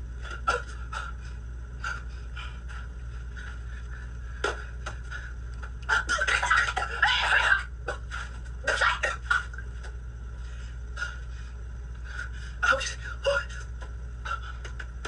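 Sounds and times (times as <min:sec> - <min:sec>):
steady low hum: 0:00.0 - 0:15.0
woman coughing and spluttering: 0:06.0 - 0:07.7.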